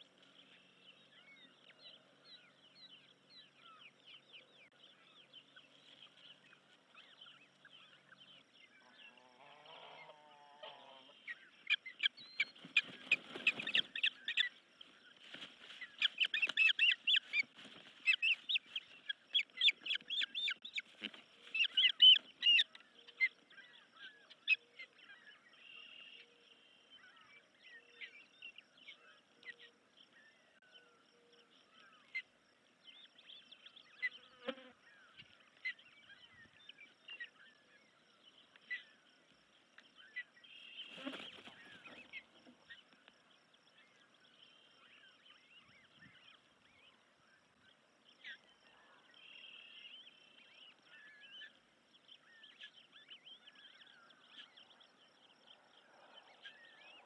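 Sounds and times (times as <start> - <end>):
ospreys chirping: 11.6 - 14.6.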